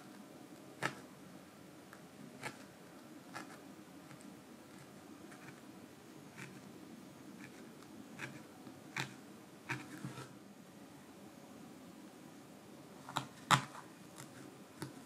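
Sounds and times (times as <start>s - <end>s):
felting needle jabbing wool: 8.2s - 10.3s.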